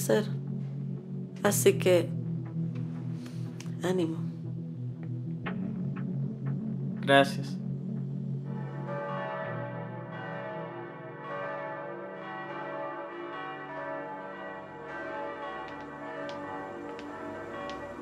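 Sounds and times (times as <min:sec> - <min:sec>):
church bells ringing: 0:08.4 - 0:18.0.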